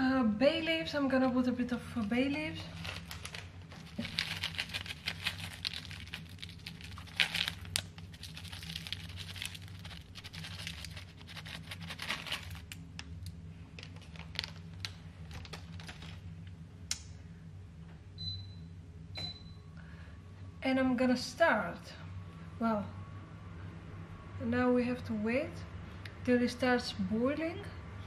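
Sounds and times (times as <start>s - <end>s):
steady low hum: 0.0s - 28.0s
plastic packet crinkling: 2.0s - 13.1s, 13.7s - 16.5s
dry leaves rustling: 2.7s - 12.7s.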